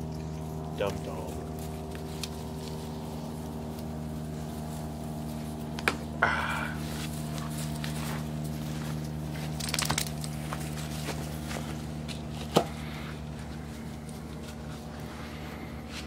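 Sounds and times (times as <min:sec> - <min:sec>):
steady low hum: 0:00.0 - 0:16.0
handling rustling and clicks: 0:09.4 - 0:11.2.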